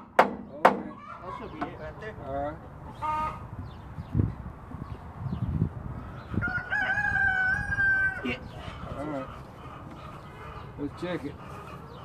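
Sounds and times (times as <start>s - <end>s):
rooster crowing: 6.3s - 8.9s.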